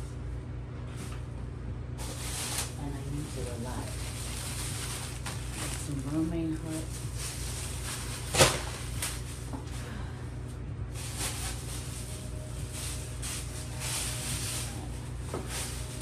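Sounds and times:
steady low hum: 0:00.0 - 0:16.0
packaging rustling: 0:02.0 - 0:09.8, 0:10.9 - 0:16.0.

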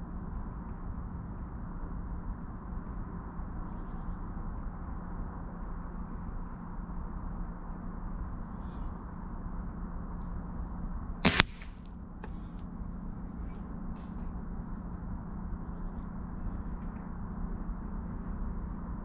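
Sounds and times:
low background noise: 0:00.0 - 0:19.0
pellet hitting steel plate: 0:11.2 - 0:11.8.

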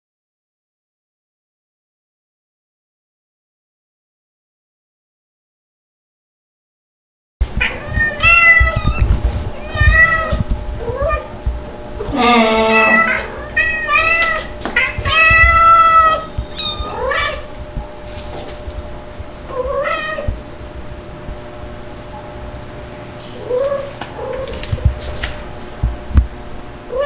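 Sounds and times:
cats meowing: 0:07.6 - 0:11.3, 0:12.0 - 0:17.5, 0:19.5 - 0:20.4, 0:23.3 - 0:25.0.

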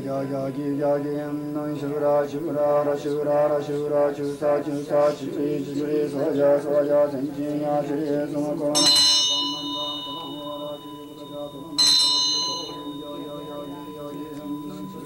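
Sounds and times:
group chanting: 0:00.0 - 0:15.0
ritual bell ringing: 0:07.2 - 0:15.0.

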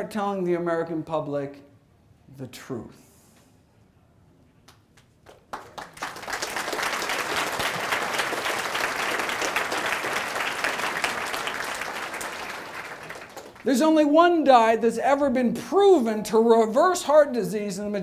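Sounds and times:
audience applause: 0:05.2 - 0:13.7.

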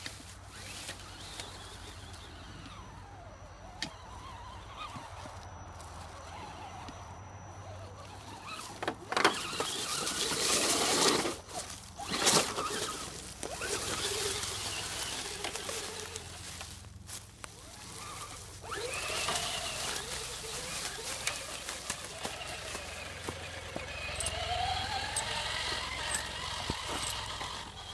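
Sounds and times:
small electric motor whining: 0:00.0 - 0:27.9
tyres crunching through dry leaves: 0:00.0 - 0:27.9
tyres scrabbling over rocks: 0:00.0 - 0:27.9.

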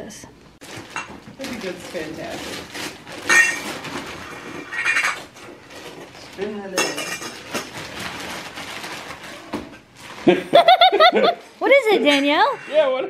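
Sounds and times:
wrapping paper rustling and tearing: 0:00.6 - 0:10.4
metal pots and pans clattering: 0:03.2 - 0:08.2.

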